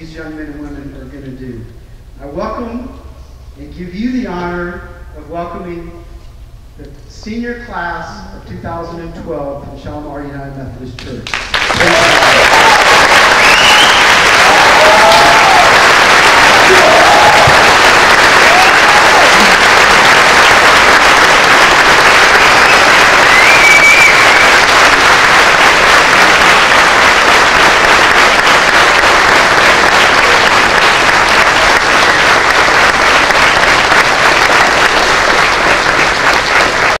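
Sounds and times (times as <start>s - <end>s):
crowd applauding: 11.2s - 37.0s.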